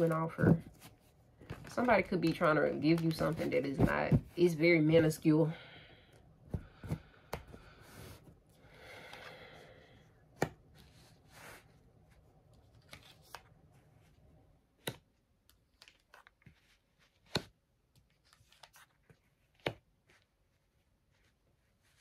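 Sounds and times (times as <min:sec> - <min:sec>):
cards rustling: 0:00.0 - 0:04.5, 0:10.4 - 0:13.7.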